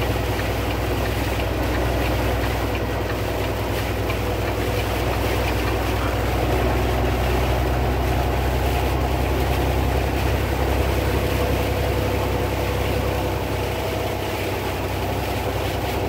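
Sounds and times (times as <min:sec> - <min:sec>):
car cabin drone: 0:00.0 - 0:16.0
tyres hissing on wet pavement: 0:00.0 - 0:16.0.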